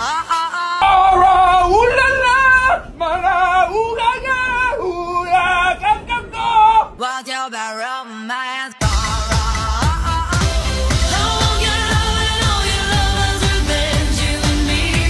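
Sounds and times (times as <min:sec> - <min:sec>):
person singing with wide vibrato: 0:00.0 - 0:15.0
low rumble: 0:00.8 - 0:07.0, 0:08.8 - 0:15.0
music track with bass: 0:08.8 - 0:15.0.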